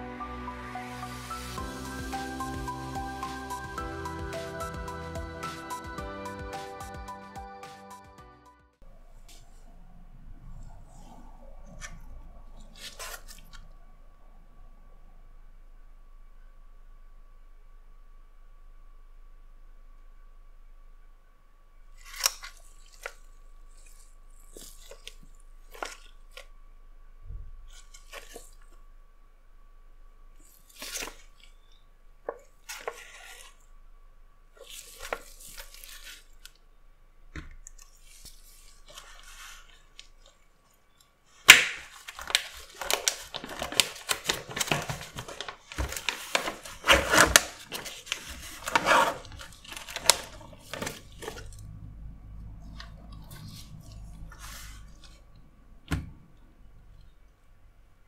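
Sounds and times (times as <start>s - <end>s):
plastic film lid peeled off: 41.5s - 51.6s.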